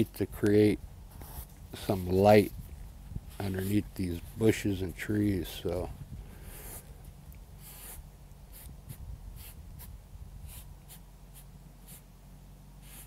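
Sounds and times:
scratchy brush strokes on canvas: 1.1s - 4.6s, 7.6s - 12.1s, 12.8s - 13.0s.

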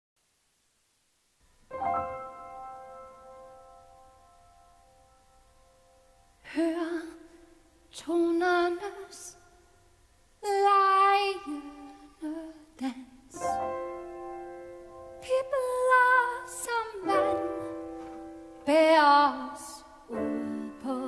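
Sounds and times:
upright piano: 1.7s - 5.5s, 13.4s - 21.0s
woman singing slow song: 6.4s - 9.6s, 10.4s - 13.7s, 15.2s - 18.0s, 18.6s - 21.0s.

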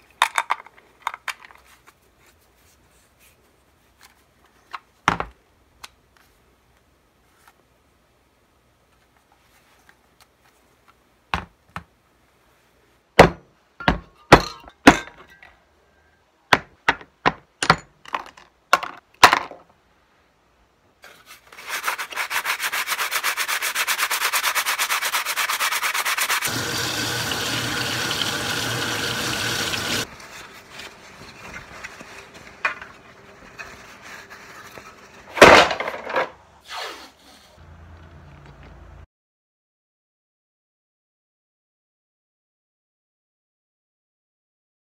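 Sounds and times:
sandpaper rasping on plastic: 21.1s - 26.5s.

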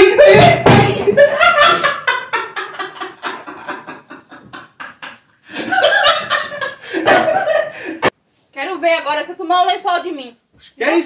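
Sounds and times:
man laughing hard: 0.0s - 8.1s.

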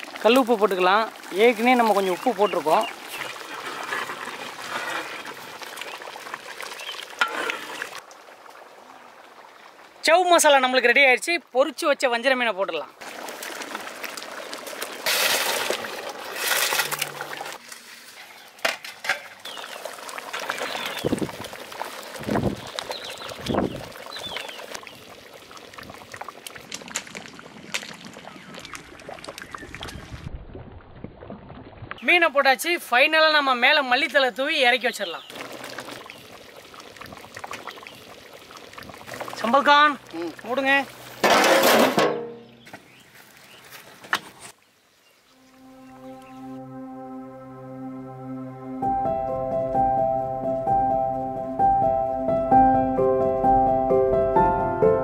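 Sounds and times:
ladle stirring boiling gravy: 0.0s - 8.7s, 13.0s - 30.0s, 35.3s - 41.9s.

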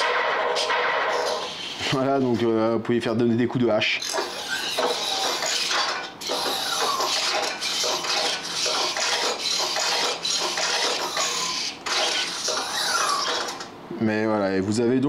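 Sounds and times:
servo motors whirring: 4.0s - 13.7s.

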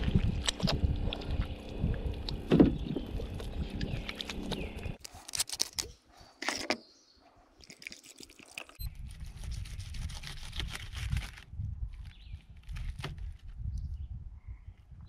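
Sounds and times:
wind on microphone: 0.0s - 5.0s, 8.8s - 15.0s.

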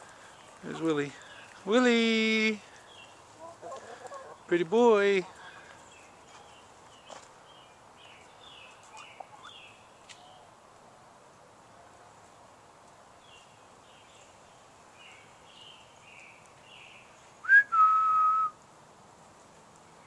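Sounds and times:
songbird chirping: 0.0s - 10.9s, 11.5s - 20.0s
person whistling: 17.4s - 18.6s.

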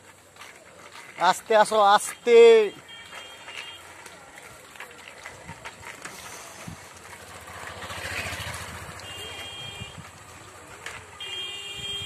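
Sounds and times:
motorcycle passing: 5.4s - 12.0s.

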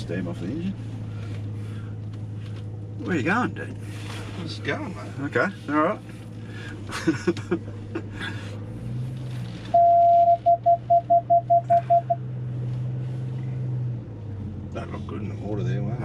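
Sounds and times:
truck engine hum: 0.0s - 16.0s
electronic warning beeps: 9.7s - 12.2s.

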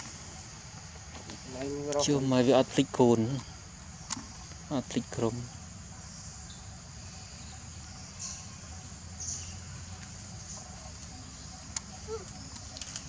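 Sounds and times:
insect chorus: 0.0s - 13.0s
short faint calls: 9.6s - 13.0s.

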